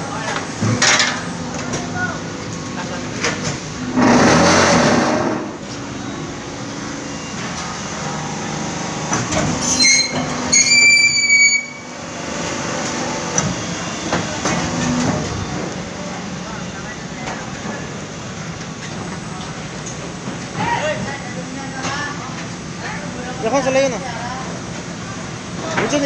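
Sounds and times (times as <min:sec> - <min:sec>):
machinery humming: 0:00.0 - 0:26.0
loud rushing surge: 0:03.6 - 0:09.1
high-pitched metallic squeal: 0:09.6 - 0:12.0.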